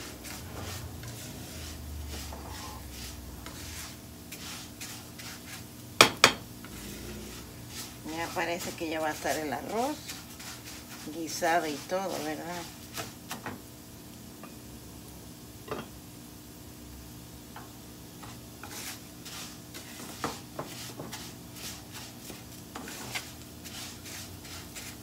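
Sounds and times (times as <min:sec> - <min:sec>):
plastic spoon scraping a pan: 0:00.0 - 0:05.7, 0:06.6 - 0:13.5, 0:18.2 - 0:25.0.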